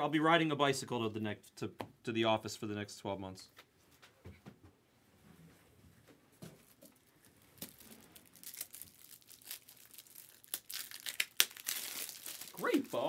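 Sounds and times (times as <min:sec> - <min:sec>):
foil wrapper tearing and crinkling: 0:07.2 - 0:13.0.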